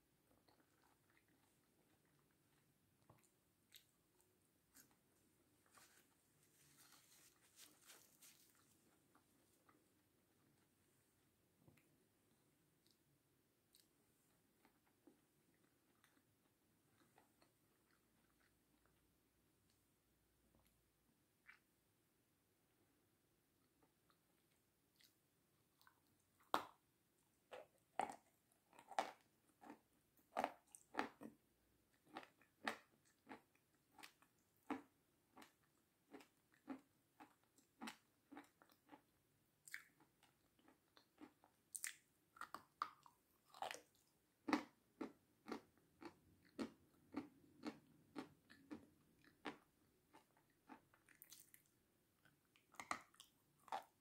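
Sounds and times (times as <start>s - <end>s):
crunchy chewing: 27.5s - 54.0s.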